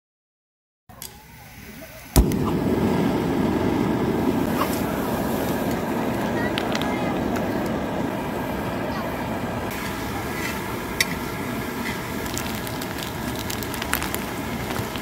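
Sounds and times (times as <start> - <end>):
food sizzling in a pan: 9.7 - 15.0.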